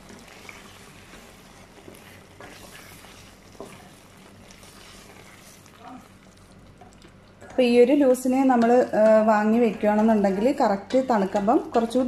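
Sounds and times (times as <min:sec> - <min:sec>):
spatula scraping a pan: 0:00.0 - 0:05.8
curry simmering hiss: 0:00.0 - 0:07.7.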